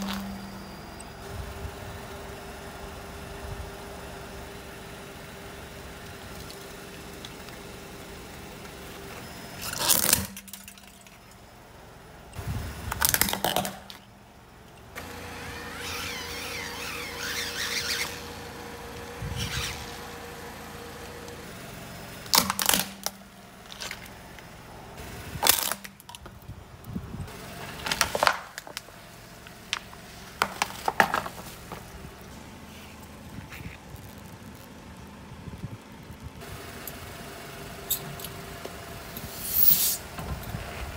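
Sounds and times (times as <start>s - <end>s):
car engine idling: 0.0s - 40.9s
plastic toys cracking under tyre: 12.9s - 14.1s, 22.3s - 24.1s, 27.8s - 28.9s
toy fan motor whirring: 15.4s - 18.3s, 19.2s - 20.0s.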